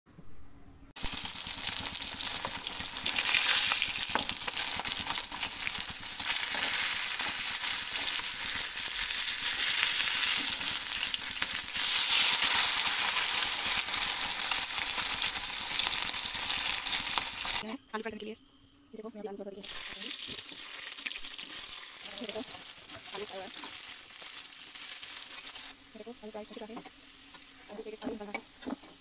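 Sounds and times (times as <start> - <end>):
fish sizzling in hot oil: 1.0 - 17.6, 19.6 - 29.0.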